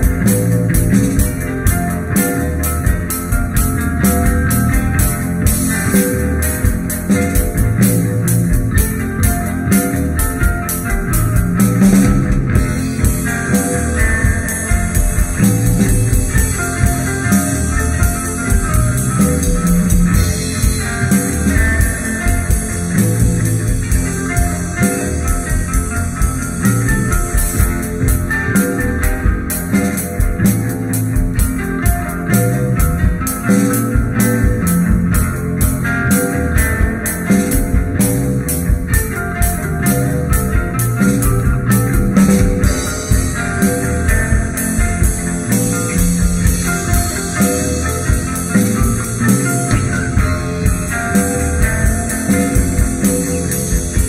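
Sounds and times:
instrumental rock music: 0.0 - 54.0.

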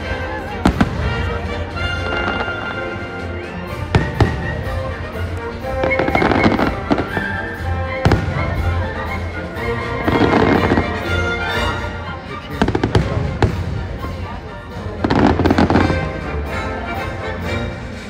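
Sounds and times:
fireworks bangs: 3.8 - 9.1, 10.0 - 11.0.

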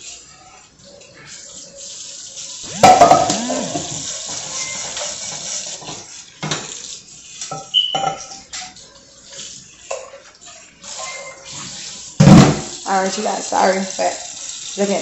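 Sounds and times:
pots and metal utensils clanking: 2.7 - 12.9.

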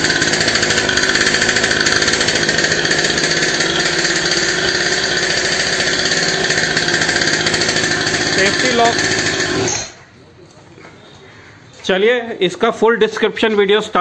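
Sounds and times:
two-stroke engine buzzing: 0.0 - 10.0.

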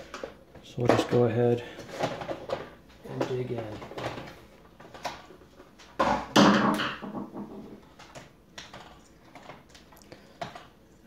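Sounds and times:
plastic creaking and scraping: 0.8 - 5.7.

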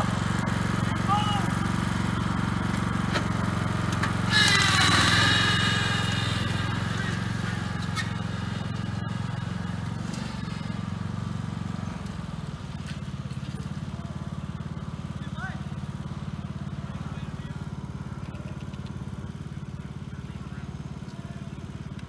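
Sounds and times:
lawn mower engine running: 0.0 - 22.0
loud high-pitched sound: 4.3 - 10.9.

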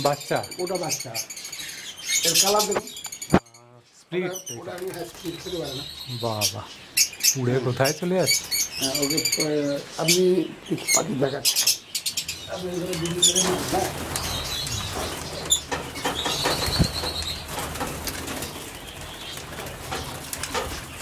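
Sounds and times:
bird wings flapping: 13.2 - 21.0.

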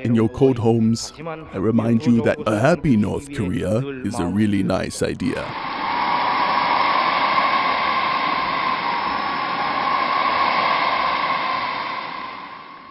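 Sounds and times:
steady hissing noise with tone: 3.6 - 12.9.

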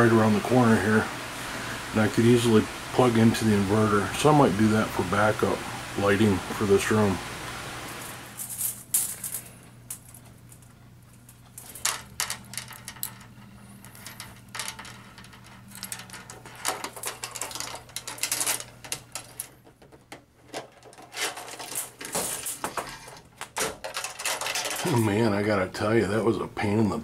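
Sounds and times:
steady low hum: 0.0 - 27.0
metal chain and hooks clinking: 8.4 - 10.7, 11.3 - 19.5.

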